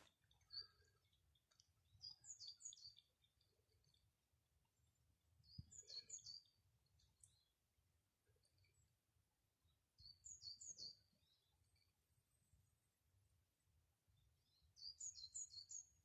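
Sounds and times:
faint bird chirps: 0.0s - 4.0s, 5.4s - 7.6s, 10.0s - 12.0s, 14.4s - 16.0s.

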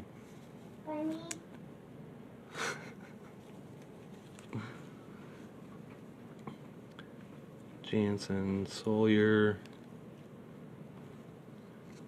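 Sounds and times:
handling of trading cards: 3.4s - 4.6s, 11.0s - 12.0s.

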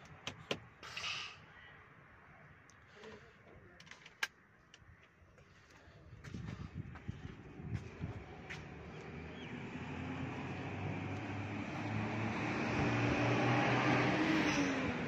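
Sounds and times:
vehicle engine running: 6.6s - 13.3s.

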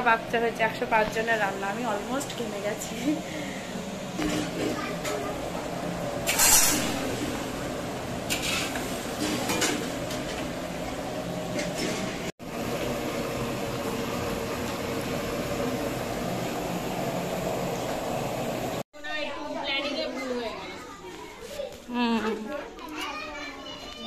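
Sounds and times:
gas burners rushing: 0.0s - 18.8s.

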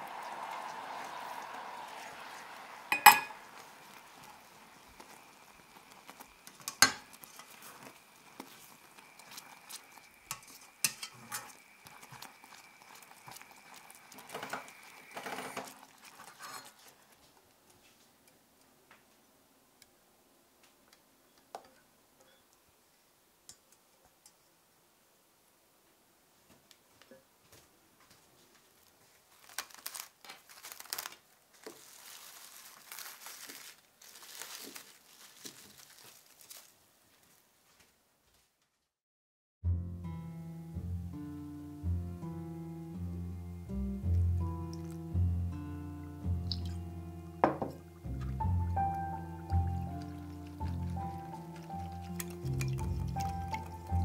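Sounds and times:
spatula scraping saucepan: 9.2s - 16.9s.

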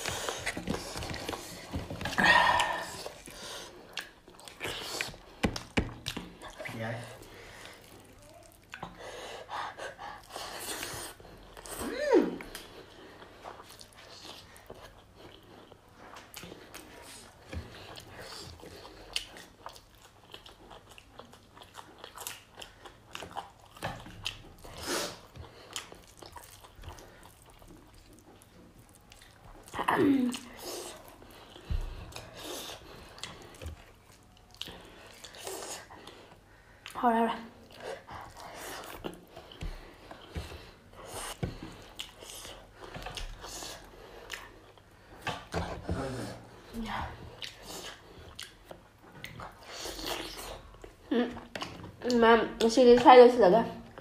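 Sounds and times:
chewing and biting meat: 12.5s - 37.0s, 37.6s - 46.5s, 47.1s - 52.0s.

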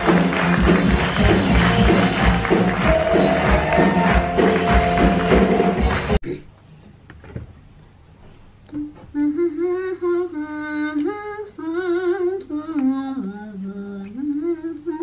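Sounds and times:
woman singing wordless melody: 8.7s - 15.0s.

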